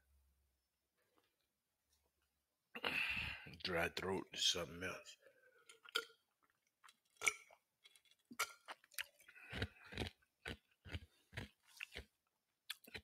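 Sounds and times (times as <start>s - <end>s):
person gulping water: 5.6s - 12.1s.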